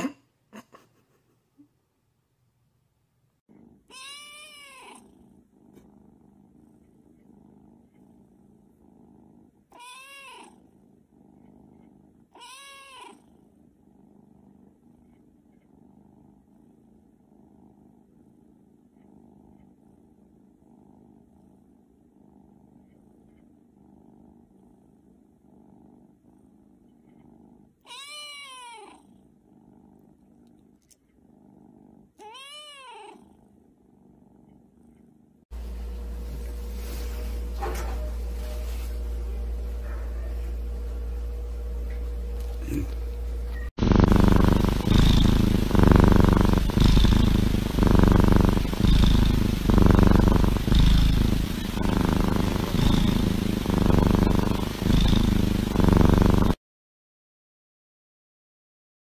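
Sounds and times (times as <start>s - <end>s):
kitten purring: 3.3s - 56.6s
kitten meows: 3.9s - 5.0s, 9.7s - 10.5s, 12.3s - 13.2s, 27.8s - 29.0s, 32.2s - 33.2s.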